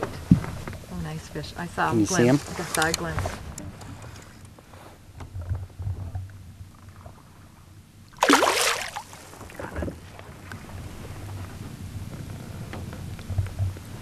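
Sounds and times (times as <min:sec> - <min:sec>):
wind and water rumble: 0:00.0 - 0:14.0
fish splashing at surface: 0:08.2 - 0:09.4.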